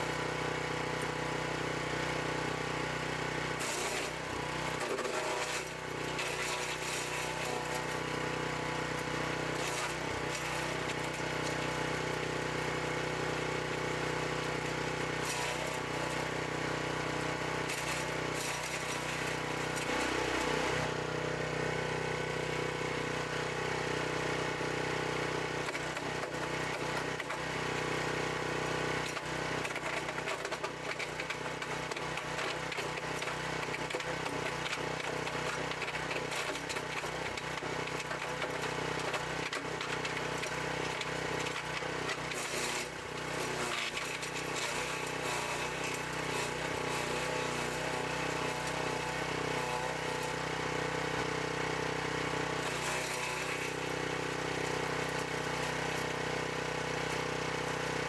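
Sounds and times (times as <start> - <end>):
wood chipper engine running: 0.0 - 58.0
branches crackling in chipper: 35.4 - 50.2.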